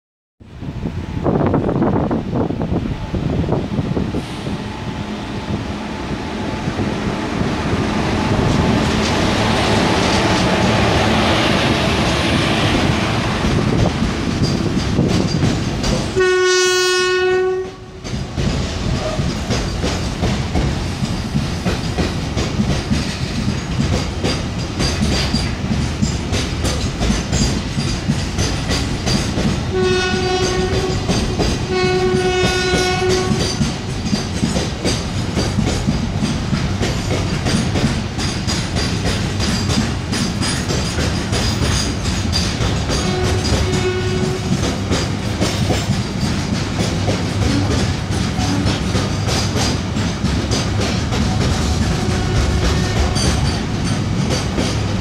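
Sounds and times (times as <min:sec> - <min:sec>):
freight train rumbling past: 0:00.4 - 0:55.0
train horn: 0:16.1 - 0:18.0, 0:29.7 - 0:33.6, 0:42.9 - 0:44.8, 0:51.3 - 0:53.4.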